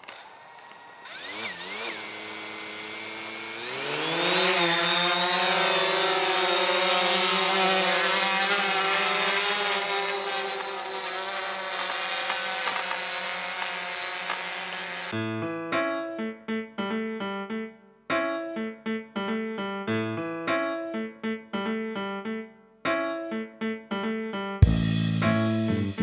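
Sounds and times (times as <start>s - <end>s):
drone propellers whining: 0.0s - 15.1s.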